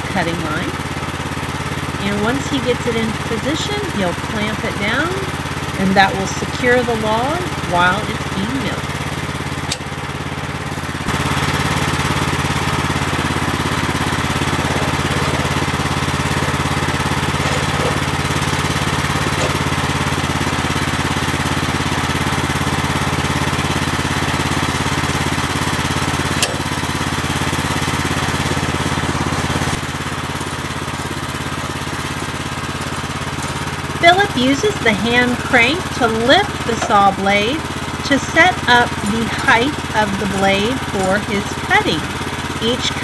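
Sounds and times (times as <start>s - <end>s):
sawmill engine running: 0.0s - 43.0s.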